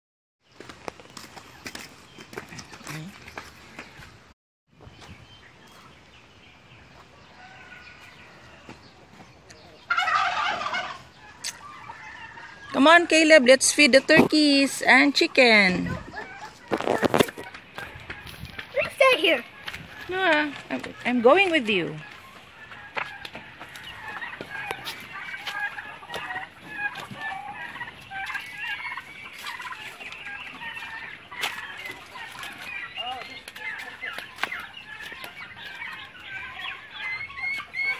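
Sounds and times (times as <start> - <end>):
turkey gobbling: 7.1 - 8.8, 9.4 - 37.9
quiet bird calls: 16.0 - 37.9.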